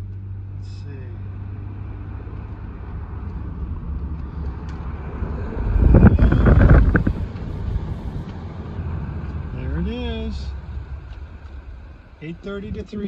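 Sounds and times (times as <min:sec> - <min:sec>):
car engine and tyre drone: 0:00.0 - 0:12.9
rush of noise: 0:02.4 - 0:12.2.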